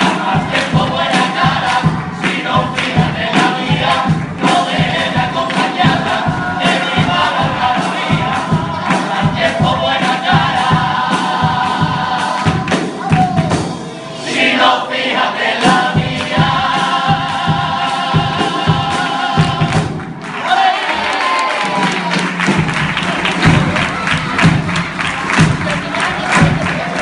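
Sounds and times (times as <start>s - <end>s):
men singing in chorus: 0.0s - 12.8s, 14.2s - 19.9s
steady drum beat: 0.0s - 20.3s, 21.8s - 27.0s.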